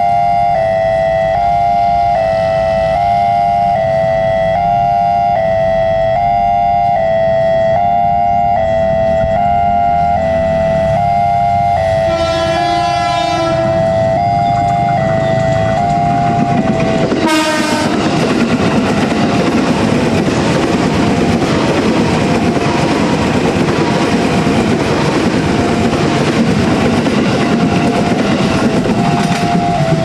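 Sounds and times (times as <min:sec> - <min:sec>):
level crossing alarm: 0:00.0 - 0:19.4, 0:27.0 - 0:30.0
train horn: 0:06.8 - 0:14.2, 0:15.0 - 0:18.1
train rumble and wheel clatter: 0:08.5 - 0:30.0.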